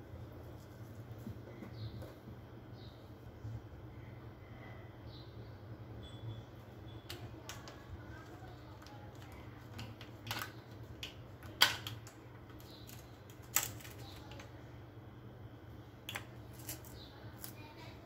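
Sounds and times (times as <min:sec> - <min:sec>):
low steady hum: 0:00.0 - 0:18.0
ice cube tray clicking and cracking: 0:08.8 - 0:14.5.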